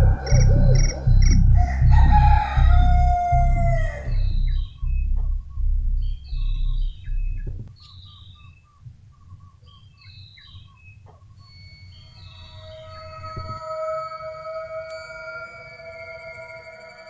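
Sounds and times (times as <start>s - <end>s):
steady electronic music tone: 0.0s - 7.7s, 11.4s - 17.0s
low rumble: 0.0s - 7.8s
birds calling: 0.0s - 11.4s.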